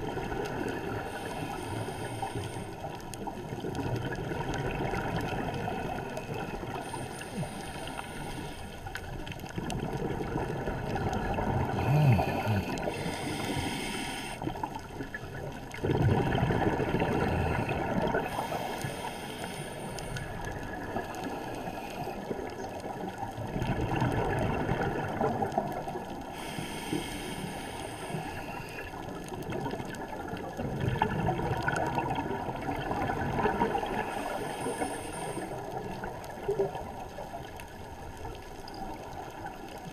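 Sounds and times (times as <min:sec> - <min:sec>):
regulator inhale hiss: 0:00.8 - 0:03.1, 0:05.9 - 0:09.0, 0:11.8 - 0:14.7, 0:17.2 - 0:20.4, 0:21.1 - 0:22.3, 0:26.3 - 0:29.0, 0:33.9 - 0:36.0
bubbling exhale: 0:09.8 - 0:14.6, 0:15.8 - 0:22.4.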